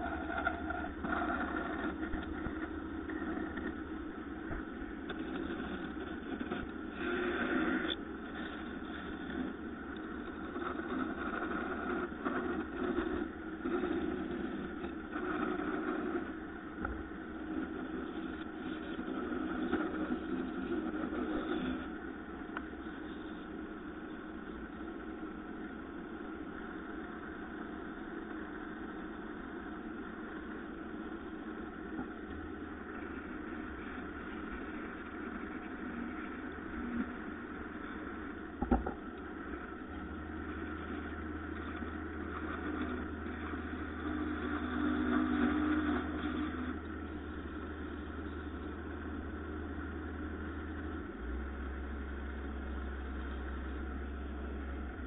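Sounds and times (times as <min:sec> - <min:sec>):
electric motor humming: 0:39.8 - 0:55.0.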